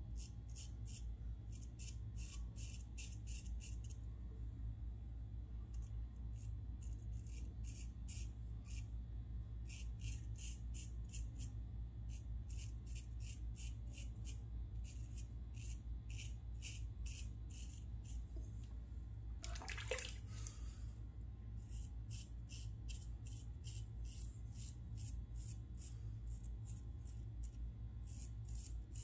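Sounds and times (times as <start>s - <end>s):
razor scraping stubble: 9.6s - 11.5s, 12.1s - 18.4s, 21.6s - 29.0s
tap water rushing: 19.4s - 20.3s.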